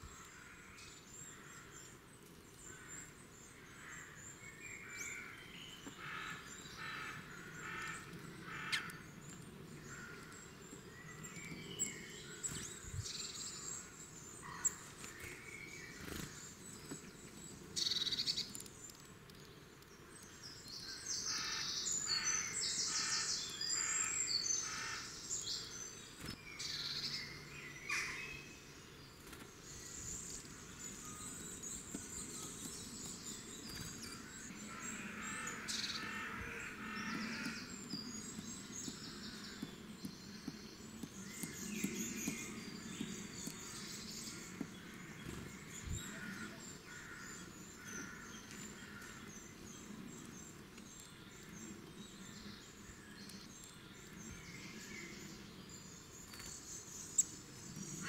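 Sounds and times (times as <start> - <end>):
songbirds singing and chirping: 0.0 - 58.0.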